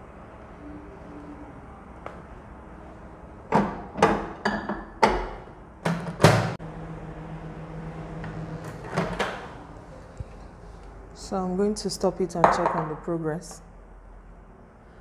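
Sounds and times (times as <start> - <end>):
microwave humming: 5.8 - 9.8.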